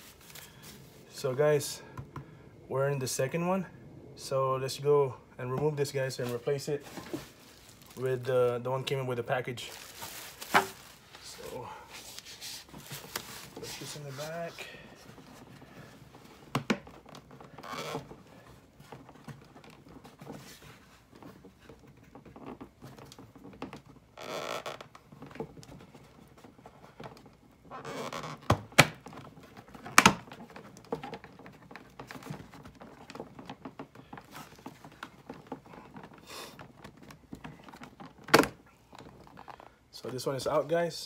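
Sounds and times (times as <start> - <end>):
plastic scraping: 6.2 - 8.6, 9.6 - 39.8.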